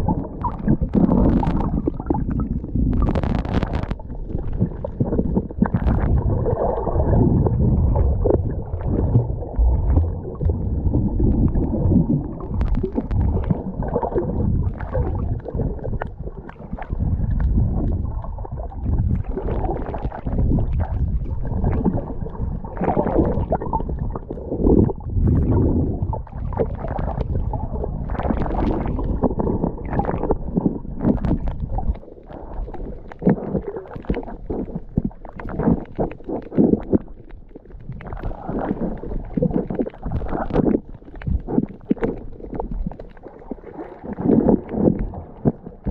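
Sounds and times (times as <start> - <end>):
underwater rumble and gurgling: 0.0 - 45.9
short clicks and crackles: 2.9 - 4.6, 11.5 - 13.6.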